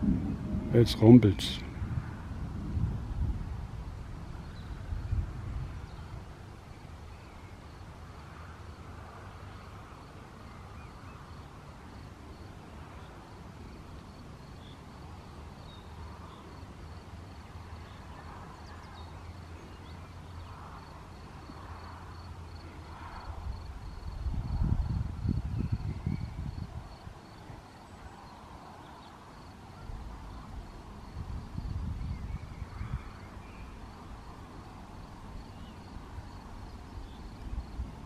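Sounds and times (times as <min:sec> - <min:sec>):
low outdoor rumble: 0:00.0 - 0:25.4
cricket chirping: 0:05.8 - 0:38.0.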